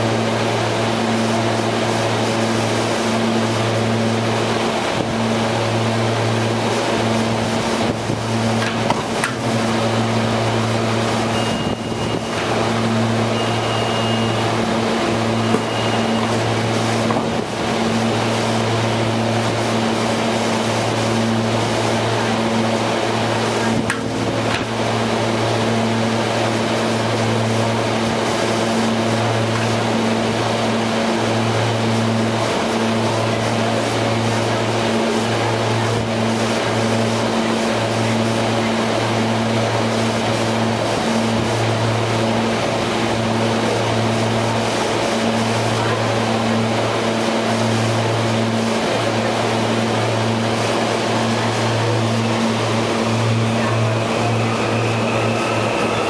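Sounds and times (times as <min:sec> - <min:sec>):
railcar equipment low hum: 0:00.0 - 0:56.0
short high beeps: 0:11.2 - 0:12.6, 0:13.2 - 0:16.5.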